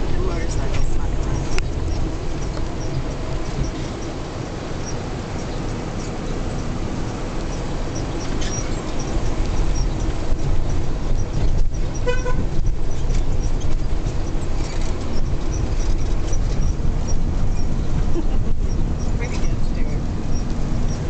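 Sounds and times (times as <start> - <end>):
van engine and road rumble: 0.0 - 21.0
horn toot: 12.0 - 12.6.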